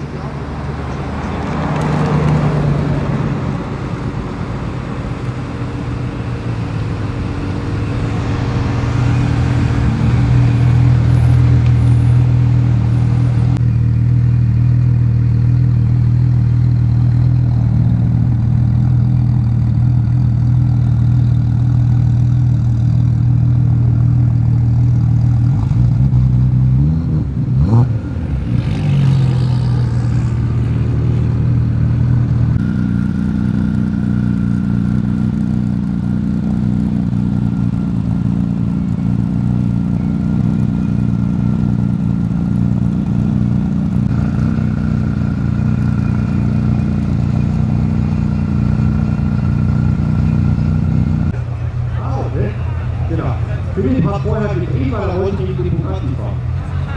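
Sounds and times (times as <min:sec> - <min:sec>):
car engine idling loudly: 0:30.3 - 0:56.9.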